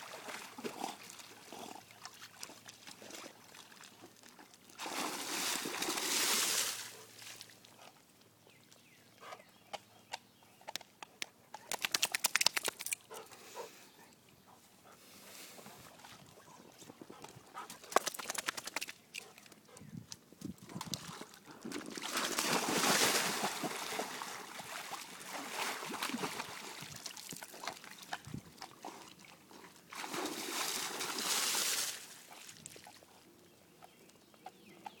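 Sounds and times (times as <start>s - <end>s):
water splashing and sloshing: 0.0s - 7.7s, 20.8s - 33.0s.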